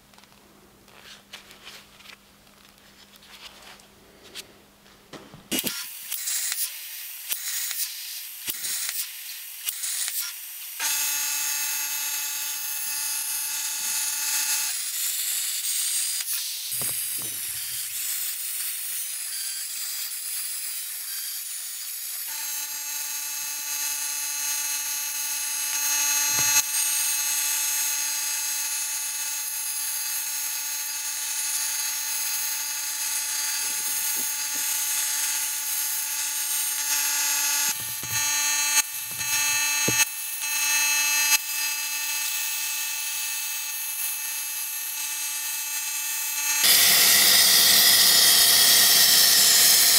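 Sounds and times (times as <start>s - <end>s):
plasma cutter hissing: 33.2s - 35.5s, 46.6s - 49.9s
pitched whine: 36.7s - 40.6s.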